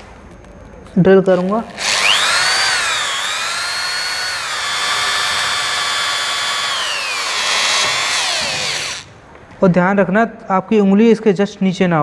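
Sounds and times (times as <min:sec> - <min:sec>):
drill motor whining: 0:01.4 - 0:09.1.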